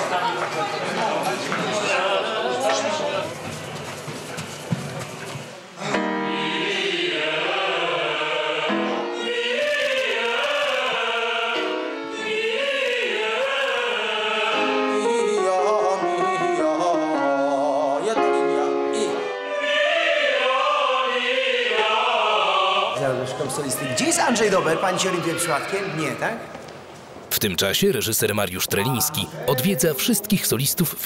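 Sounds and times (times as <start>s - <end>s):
opera chorus singing chords: 5.8s - 26.5s, 28.8s - 31.0s.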